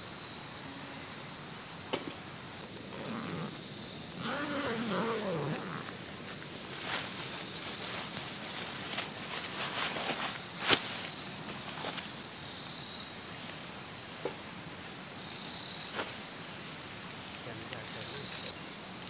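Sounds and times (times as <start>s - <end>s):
insects trilling: 0.0s - 19.0s
tent fabric rustling: 2.7s - 12.3s.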